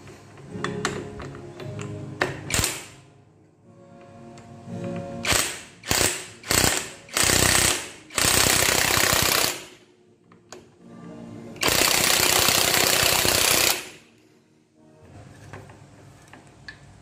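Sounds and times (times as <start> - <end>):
impact wrench hammering: 5.2 - 9.8, 11.6 - 14.0.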